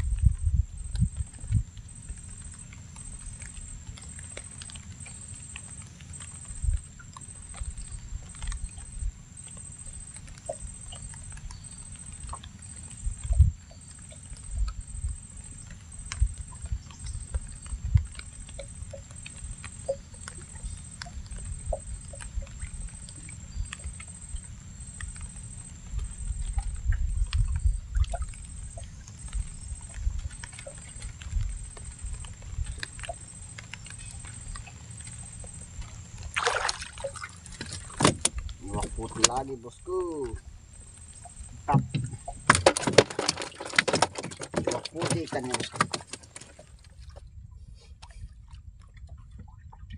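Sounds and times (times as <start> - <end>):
water lapping against boat hull: 0.0 - 49.9
soft knocks and thumps: 37.6 - 39.3, 41.6 - 47.2.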